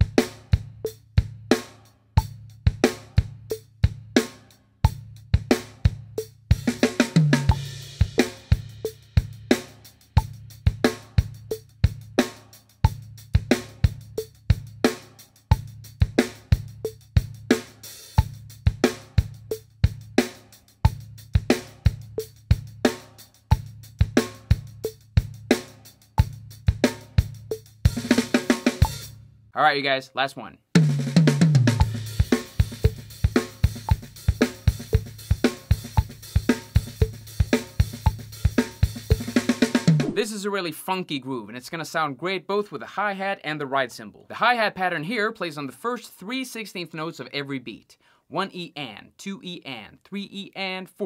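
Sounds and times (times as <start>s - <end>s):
bass drum: 0.0s - 29.2s, 30.8s - 40.2s
snare backbeat: 30.8s - 40.3s
hi-hat: 31.7s - 39.7s.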